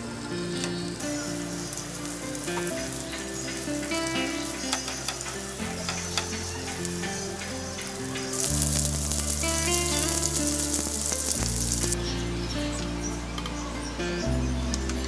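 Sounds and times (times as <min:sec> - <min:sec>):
background music: 0:00.0 - 0:15.0
food sizzling in frying pan: 0:01.0 - 0:12.0.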